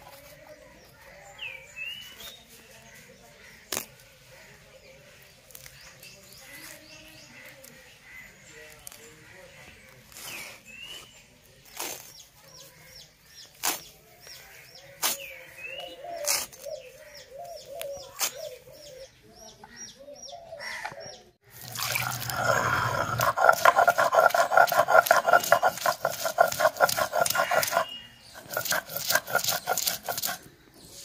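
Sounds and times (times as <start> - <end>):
leaves snapping against blade: 3.7 - 4.0, 13.6 - 13.9
stone roller grinding on stone: 21.6 - 31.0.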